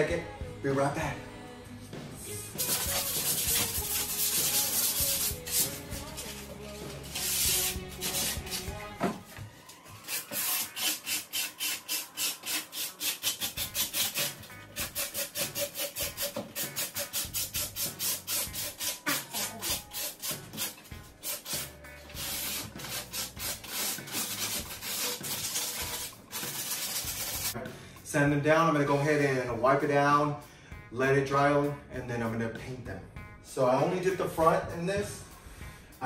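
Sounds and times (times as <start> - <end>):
sanding block rubbing wood: 2.6 - 8.9, 10.0 - 27.6.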